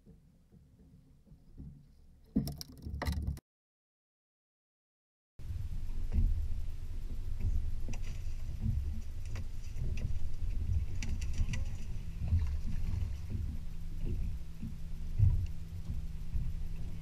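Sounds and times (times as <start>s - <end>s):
choppy water around boat: 0.0s - 3.4s, 5.4s - 17.0s
wind rumble: 5.4s - 17.0s.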